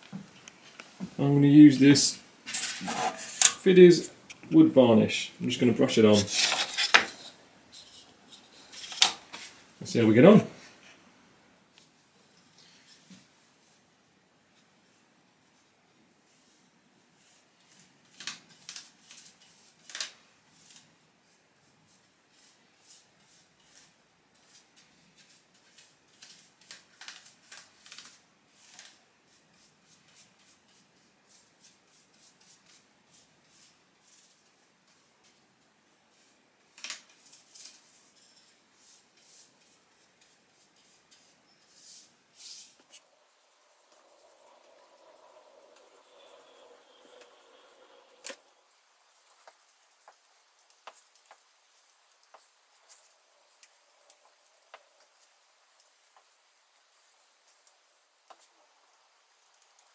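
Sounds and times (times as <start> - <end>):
paintbrush strokes on wood: 0.6 - 4.1, 4.7 - 10.8, 11.7 - 13.9, 14.6 - 18.0, 20.4 - 59.9
faint steady hum: 37.8 - 59.9.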